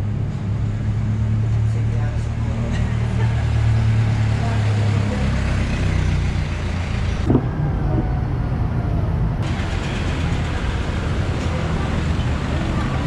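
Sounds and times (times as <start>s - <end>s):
vehicle engine running: 9.0s - 13.0s.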